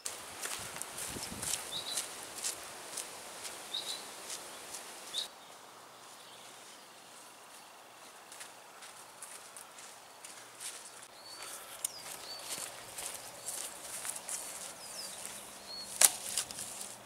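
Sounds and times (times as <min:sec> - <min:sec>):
footsteps on dirt path: 0:00.0 - 0:17.0
high bird chirps: 0:01.7 - 0:02.1, 0:03.7 - 0:05.3, 0:11.1 - 0:16.0.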